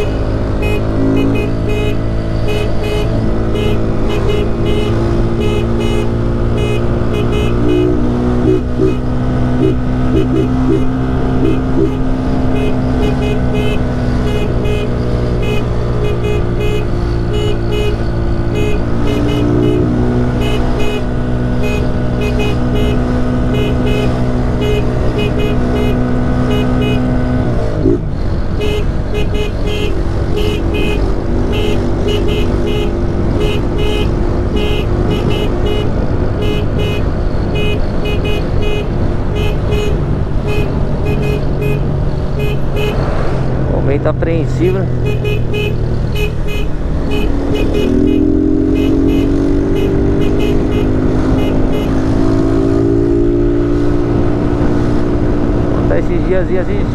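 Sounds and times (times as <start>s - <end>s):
motorcycle engine running: 0.0s - 27.1s, 27.8s - 56.9s
wind and road noise: 0.0s - 56.9s.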